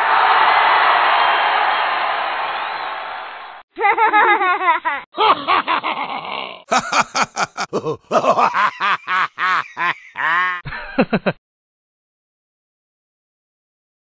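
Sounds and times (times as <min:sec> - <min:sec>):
young men laughing: 0:03.8 - 0:11.4.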